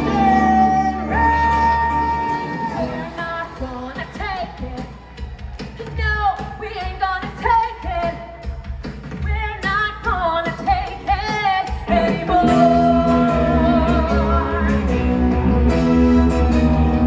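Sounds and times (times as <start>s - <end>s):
person singing with vibrato: 0.0s - 4.8s, 10.2s - 16.9s
live rock band: 0.0s - 17.0s.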